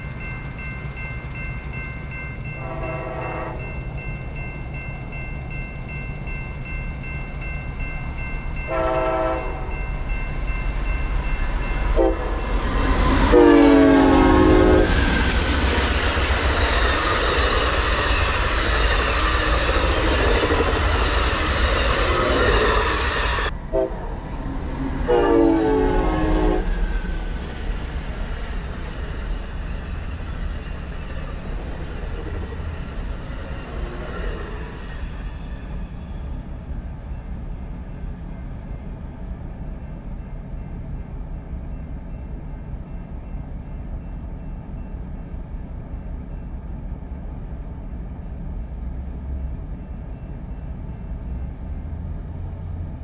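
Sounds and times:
train rushing and rumbling past: 0.0s - 53.0s
locomotive horn blasts: 2.6s - 3.7s, 8.7s - 9.8s, 11.9s - 12.4s, 13.3s - 14.9s, 23.7s - 24.0s, 25.1s - 26.7s.

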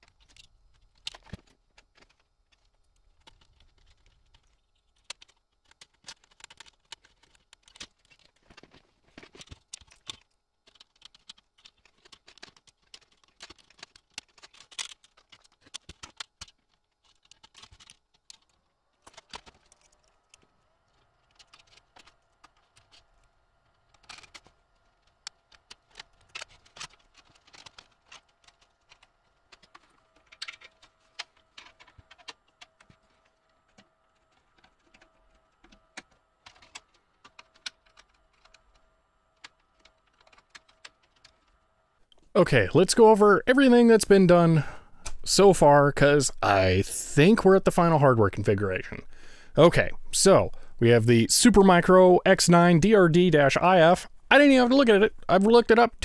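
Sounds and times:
plastic and metal clicks and rattles: 0.0s - 42.3s.

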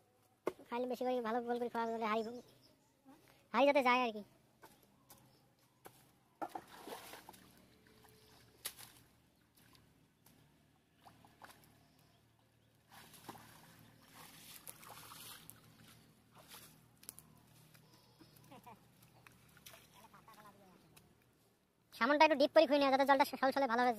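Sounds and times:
water and mud sloshing: 6.4s - 12.0s, 12.7s - 17.8s, 18.6s - 20.8s.

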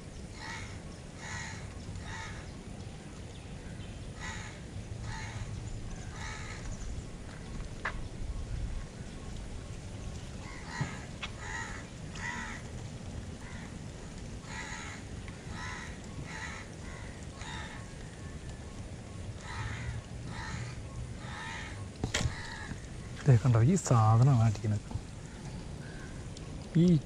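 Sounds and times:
bird calling: 10.4s - 12.7s, 14.4s - 27.0s.

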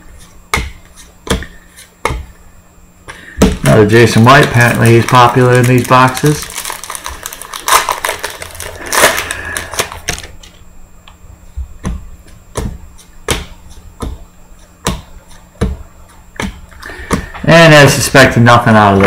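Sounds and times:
foil wrapper crinkling and tearing: 3.8s - 10.3s.

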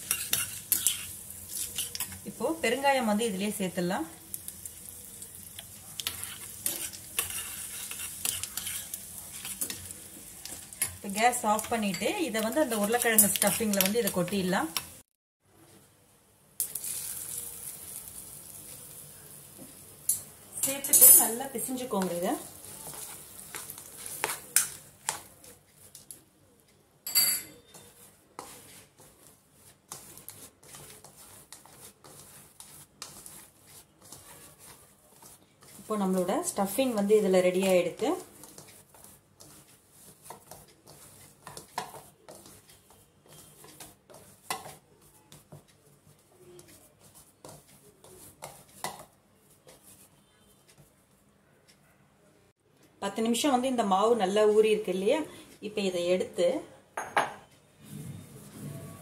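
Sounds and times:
spoon scraping and clinking pan: 0.0s - 2.3s, 5.5s - 14.9s, 20.1s - 22.2s, 27.1s - 28.8s, 39.4s - 44.8s
oil sizzling in a pan: 0.0s - 15.1s, 16.5s - 26.2s, 27.1s - 46.4s, 47.0s - 50.1s
soft rustling of hand mixing: 0.0s - 59.0s
fingers tapping and scraping bowl: 27.1s - 50.9s.

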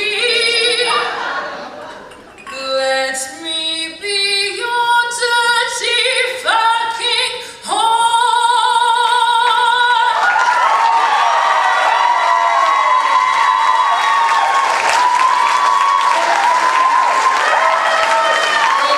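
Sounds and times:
woman singing with vibrato: 0.0s - 1.5s, 2.5s - 10.4s.

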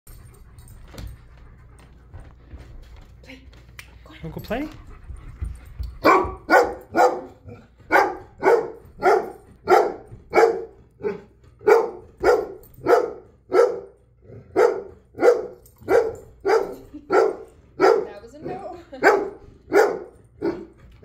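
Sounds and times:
dog barking: 6.0s - 18.2s, 18.9s - 20.8s.

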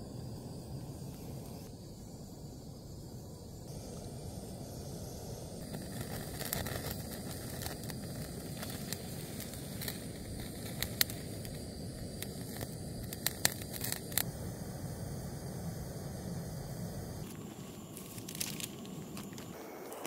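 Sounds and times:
gas stove burner running: 0.0s - 20.0s
meat fat crackling and popping: 5.6s - 14.3s, 17.2s - 20.0s.

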